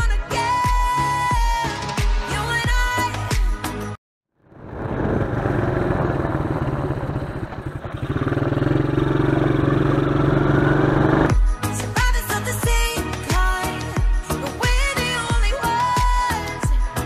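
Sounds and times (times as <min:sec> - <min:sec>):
quad engine running: 0:04.5 - 0:11.4.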